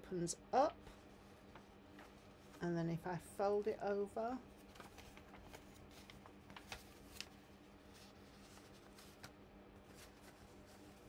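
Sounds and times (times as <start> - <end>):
paper rustling and crinkling: 0.8 - 2.6, 4.5 - 11.0.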